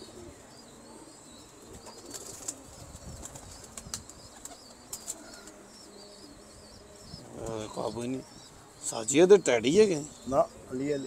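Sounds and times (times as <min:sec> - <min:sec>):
pigeons flapping wings: 0:01.7 - 0:05.6.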